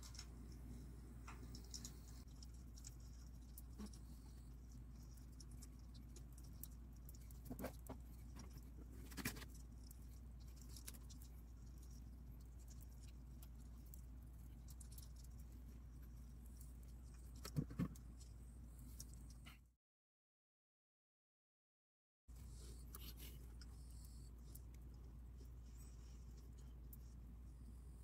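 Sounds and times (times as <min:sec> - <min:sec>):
faint ticks and scratches: 0:00.0 - 0:19.7, 0:22.3 - 0:28.0
steady low hum: 0:00.0 - 0:19.7.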